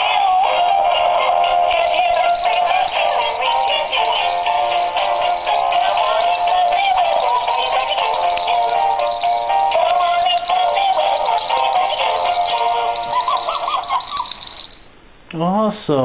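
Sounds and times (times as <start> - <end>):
synthetic singing voice: 0.0 - 5.0
toy playing electronic song: 0.0 - 14.8.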